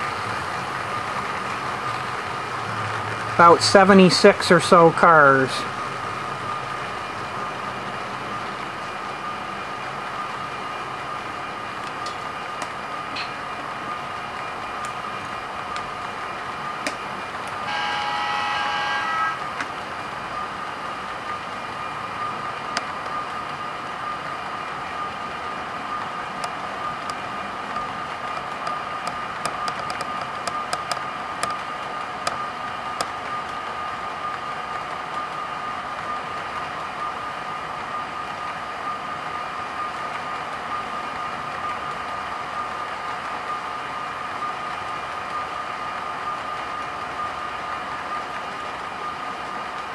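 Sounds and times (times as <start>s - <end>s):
model train cars rolling: 0.0s - 49.9s
wheels clicking over rail joints: 10.8s - 17.7s, 22.4s - 36.9s
horn-like tone: 17.6s - 19.5s
steady electric hum: 17.6s - 19.6s.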